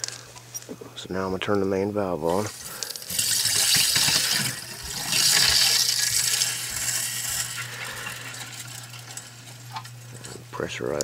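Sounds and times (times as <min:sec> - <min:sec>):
steady low hum: 0:00.0 - 0:11.0
water rushing through valve: 0:02.4 - 0:09.7.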